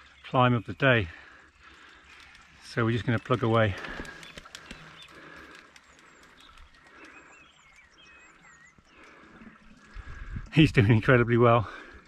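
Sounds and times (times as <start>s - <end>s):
faint bird chirps: 1.5s - 10.4s.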